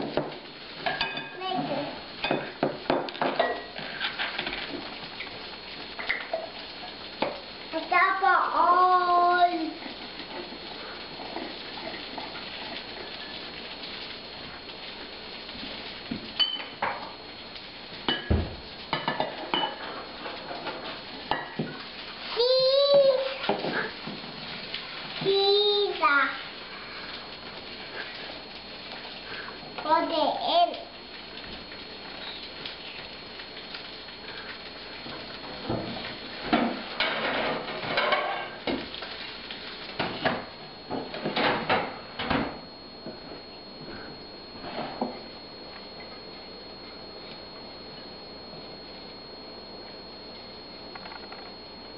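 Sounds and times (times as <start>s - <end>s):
kitchenware clattering: 0.0s - 1.4s, 2.2s - 4.6s, 16.4s - 17.1s, 18.1s - 21.8s, 36.6s - 38.8s
metal cup clinking on glass bowl: 16.4s - 16.8s.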